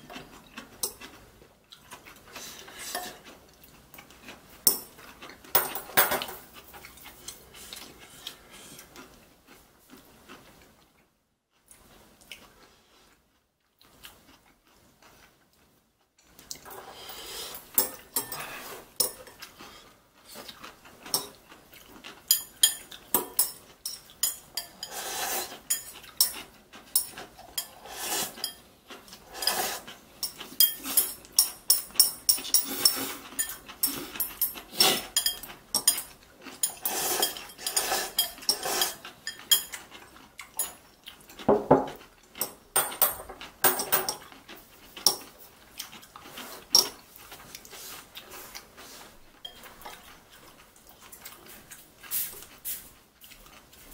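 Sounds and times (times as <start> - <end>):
chopsticks clinking on ceramic bowl: 30.2 - 39.9, 41.8 - 44.3, 49.4 - 50.0.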